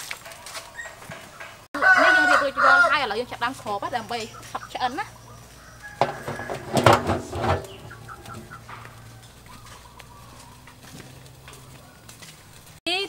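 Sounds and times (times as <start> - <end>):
metal pot lid clattering: 6.0 - 9.0.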